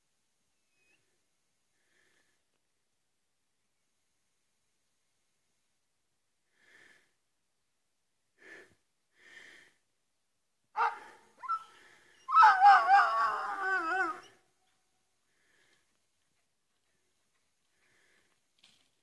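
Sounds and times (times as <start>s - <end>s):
dog barking: 10.8s - 11.7s
dog yelping: 10.8s - 14.3s
dog baying: 10.8s - 14.4s.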